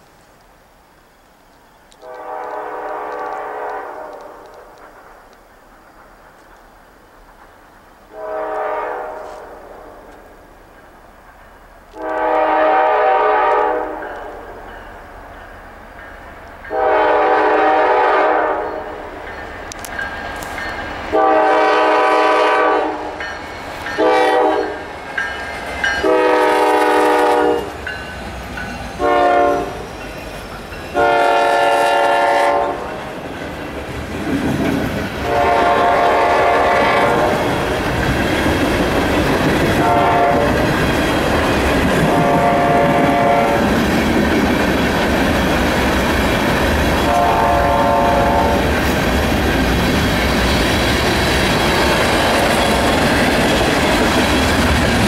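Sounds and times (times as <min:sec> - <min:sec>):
freight train rumbling: 0:00.7 - 0:55.0
locomotive air horn blasts: 0:02.0 - 0:04.5, 0:08.1 - 0:10.1, 0:12.0 - 0:14.4, 0:16.7 - 0:19.0, 0:21.1 - 0:23.2, 0:24.0 - 0:24.8, 0:26.0 - 0:27.8, 0:29.0 - 0:29.9, 0:31.0 - 0:32.9, 0:35.2 - 0:37.6, 0:39.8 - 0:40.7, 0:42.0 - 0:43.7, 0:47.0 - 0:48.7.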